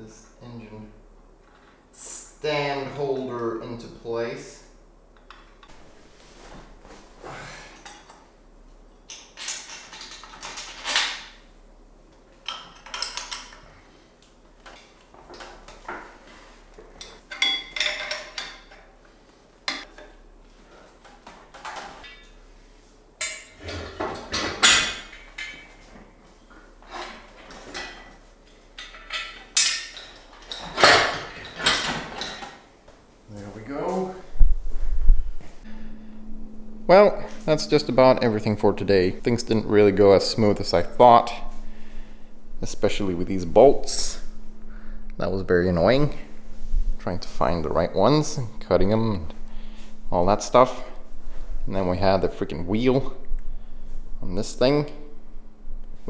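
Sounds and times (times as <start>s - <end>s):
metal tools clinking: 9.0s - 11.3s, 12.4s - 13.7s, 17.0s - 18.9s, 23.2s - 25.9s, 26.9s - 32.6s.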